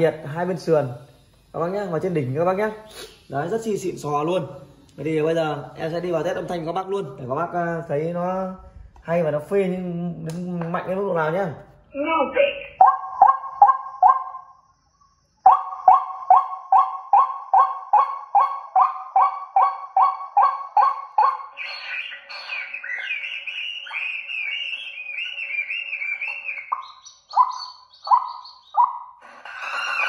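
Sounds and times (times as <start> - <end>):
recorded bird calls over loudspeakers: 12.0 - 30.0
fast warbling bird chatter: 15.5 - 30.0
honking bird calls: 15.5 - 30.0.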